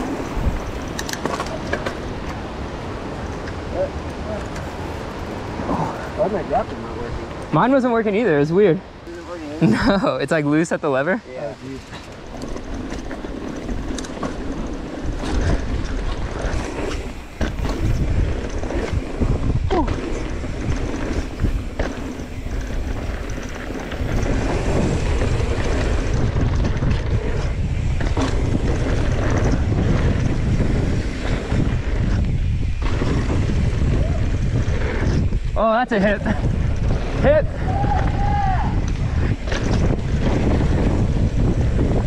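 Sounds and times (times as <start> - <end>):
bike clicks and knocks: 0.0 - 5.5, 11.6 - 35.5, 37.7 - 42.0
bike tyres on dirt: 0.0 - 42.0
wind buffeting microphone: 0.0 - 42.0.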